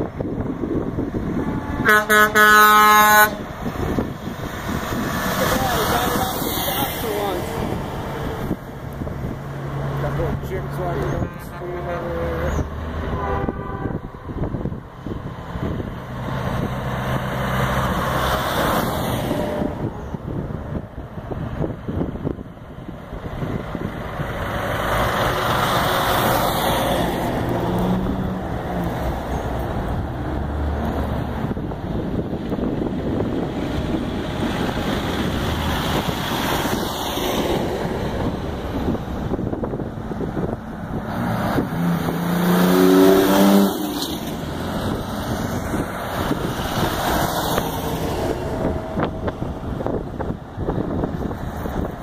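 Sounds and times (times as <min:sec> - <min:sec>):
wind buffeting microphone: 0:00.0 - 0:02.1, 0:03.2 - 0:52.0
diesel truck engine passing: 0:00.0 - 0:52.0
multi-tone air horn: 0:01.8 - 0:03.4, 0:13.0 - 0:14.3, 0:19.3 - 0:20.0.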